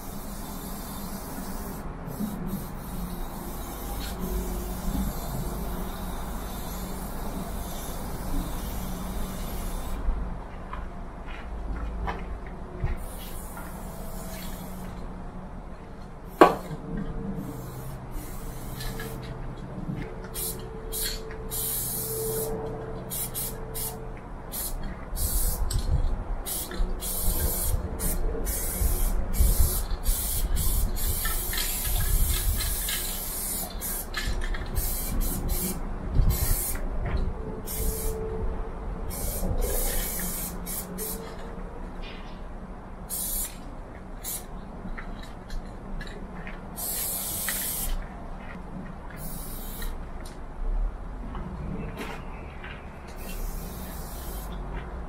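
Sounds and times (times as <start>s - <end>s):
spray paint cans hissing: 0.0s - 10.0s, 13.0s - 15.1s, 16.2s - 16.8s, 17.4s - 19.3s, 20.2s - 36.9s, 37.6s - 38.2s, 39.1s - 41.4s, 43.0s - 43.6s, 44.2s - 44.5s, 46.8s - 48.0s, 49.2s - 50.0s, 53.1s - 54.6s.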